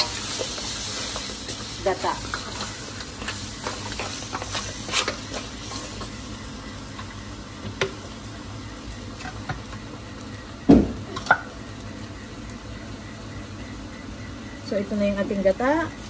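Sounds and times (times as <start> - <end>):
wooden spatula scraping a wok: 0.0 - 6.2
food sizzling: 0.0 - 16.0.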